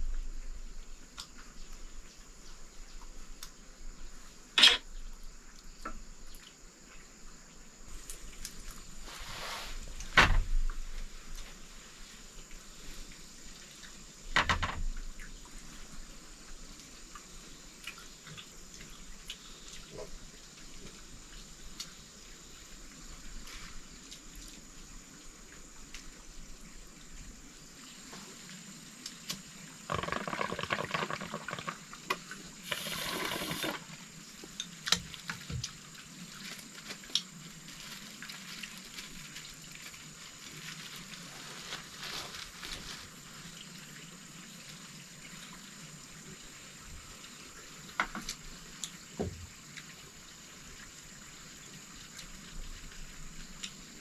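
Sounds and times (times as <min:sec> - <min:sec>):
knock: 0:14.4 - 0:14.8
splashing liquid: 0:32.6 - 0:34.0.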